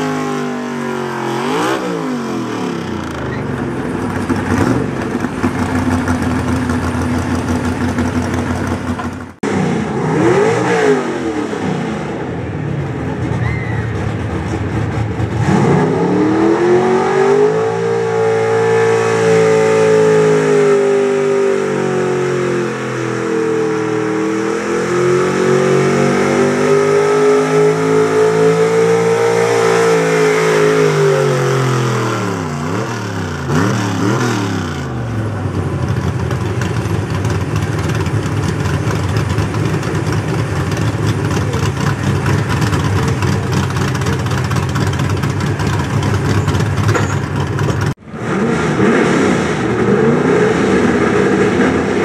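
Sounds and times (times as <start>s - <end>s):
pickup engine revving: 0.0s - 52.0s
engine idling: 2.9s - 9.4s, 35.1s - 48.0s.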